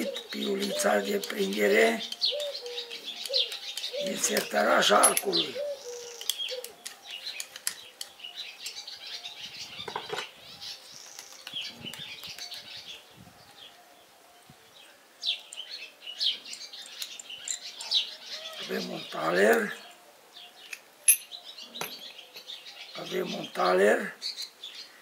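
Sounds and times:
birds chirping: 0:00.0 - 0:25.0
metal parts clinking: 0:03.2 - 0:05.5, 0:16.5 - 0:17.7, 0:20.7 - 0:22.5.

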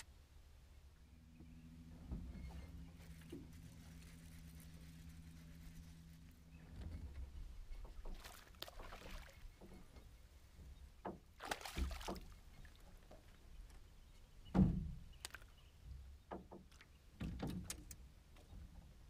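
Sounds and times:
fish splashing at the surface: 0:08.1 - 0:09.4, 0:11.4 - 0:12.3.

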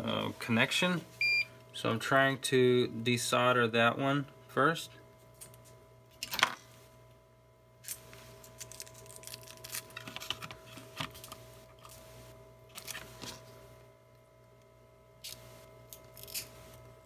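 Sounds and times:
faint steady hum: 0:00.0 - 0:17.0
metal foil crinkling: 0:08.5 - 0:10.4.

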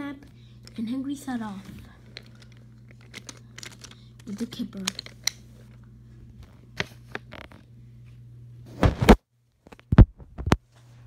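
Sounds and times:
low steady hum: 0:00.0 - 0:11.0
toy train handling clicks: 0:02.1 - 0:05.4.

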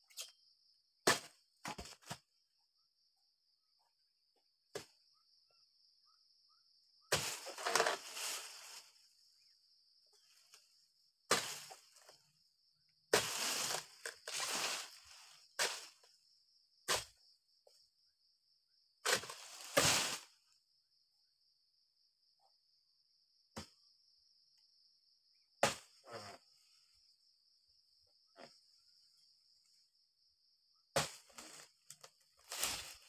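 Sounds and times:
chisel chopping into palm fronds: 0:01.1 - 0:02.2, 0:07.1 - 0:08.3, 0:11.3 - 0:12.1, 0:13.1 - 0:15.0, 0:15.6 - 0:16.0, 0:19.0 - 0:20.2, 0:31.0 - 0:31.6, 0:32.5 - 0:33.0
frond crashing through leaves: 0:13.2 - 0:15.0, 0:19.2 - 0:20.3, 0:32.5 - 0:33.0.

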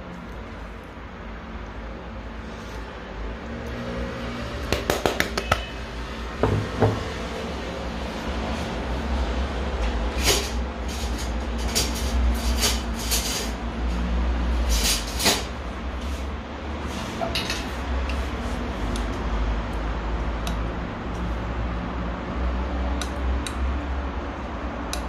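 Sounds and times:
utensils scraping dishes: 0:10.1 - 0:13.7.

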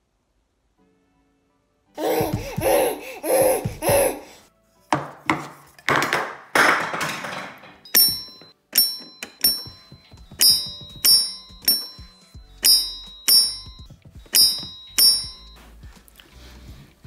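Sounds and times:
baby squealing babble: 0:02.0 - 0:04.4
knocks on high-chair table: 0:05.0 - 0:07.4
toy xylophone strikes: 0:07.9 - 0:15.6.

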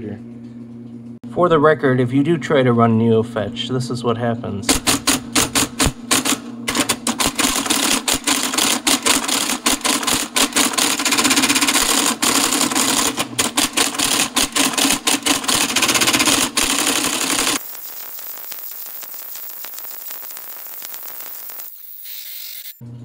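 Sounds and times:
typewriter printing rapidly: 0:04.7 - 0:17.7.

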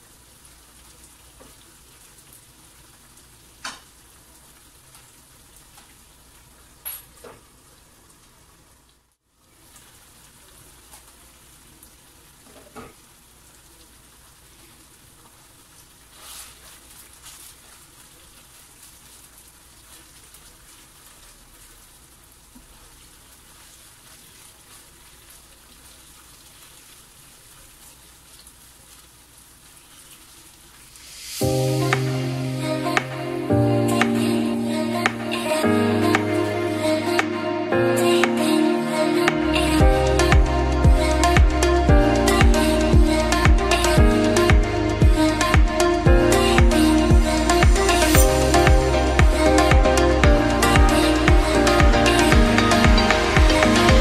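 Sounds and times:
music: 0:31.4 - 0:54.0.

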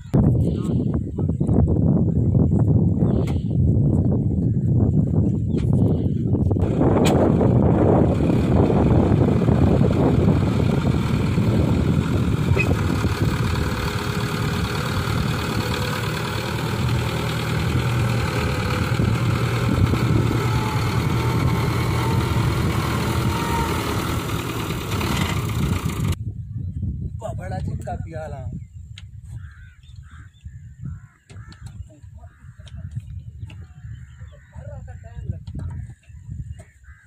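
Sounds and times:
tractor diesel engine running: 0:05.8 - 0:26.2.

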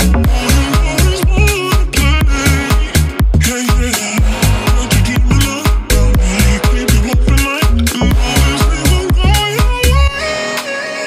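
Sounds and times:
dance music with heavy bass: 0:00.0 - 0:11.0.

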